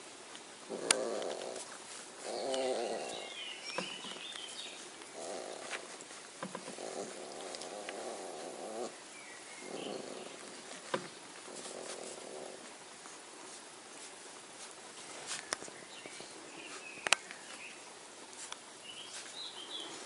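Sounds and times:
puppies grunting and snoring: 0:00.6 - 0:13.0
puppy whimper: 0:00.7 - 0:03.4.

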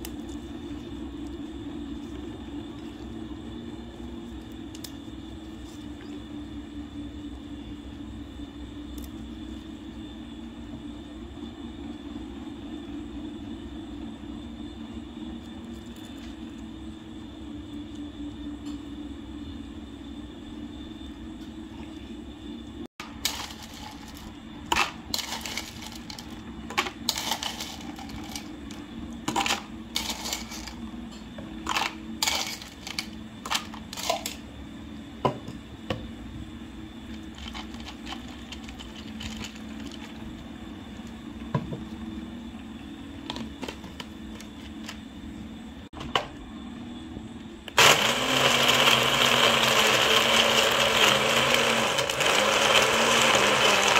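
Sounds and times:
electric blender running: 0:23.1 - 0:26.4, 0:47.7 - 0:53.9.

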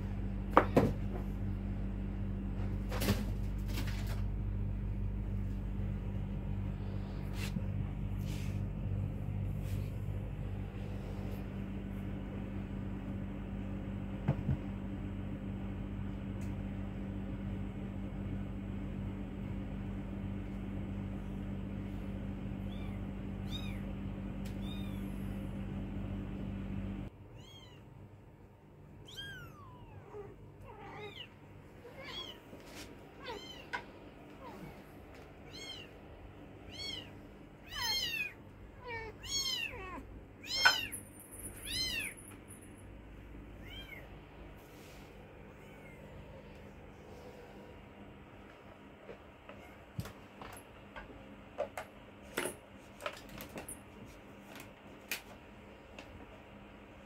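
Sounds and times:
steady low hum: 0:00.0 - 0:57.0
kittens mewing: 0:29.0 - 0:32.5, 0:33.2 - 0:36.0, 0:36.6 - 0:40.9, 0:41.6 - 0:42.2.

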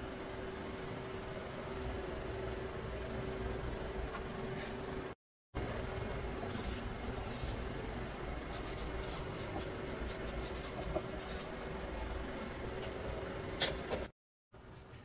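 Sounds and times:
steady low hum: 0:00.0 - 0:15.0
marker scratching on paper: 0:08.5 - 0:11.5.

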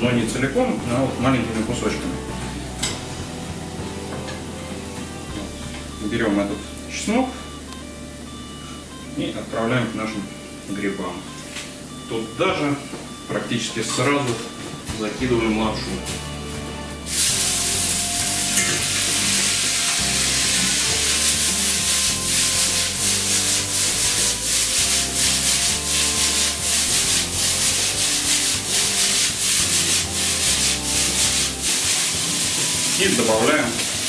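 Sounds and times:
spaghetti sizzling in wok: 0:17.1 - 0:34.0
wok tossing swishes: 0:17.1 - 0:34.0.

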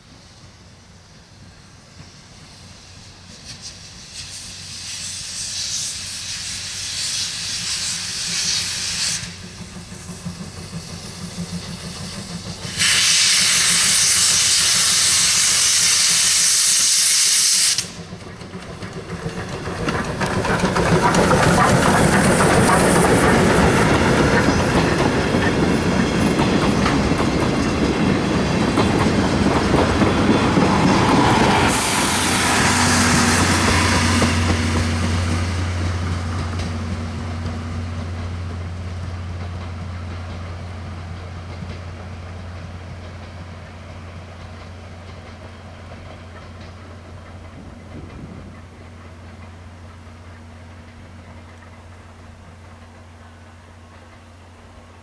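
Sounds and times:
steam hissing: 0:00.0 - 0:39.4
steam locomotive passing: 0:00.0 - 0:55.0
train wheels clattering on rails: 0:06.2 - 0:55.0.

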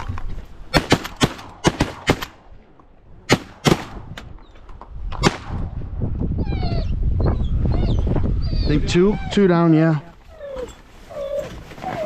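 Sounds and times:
shotgun shots: 0:00.7 - 0:02.4, 0:03.3 - 0:04.1, 0:05.2 - 0:05.6.

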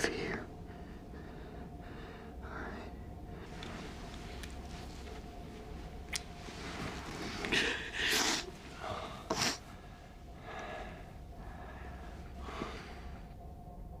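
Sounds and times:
faint steady hum: 0:00.0 - 0:14.0
person breathing heavily: 0:00.5 - 0:04.8, 0:06.6 - 0:13.3.

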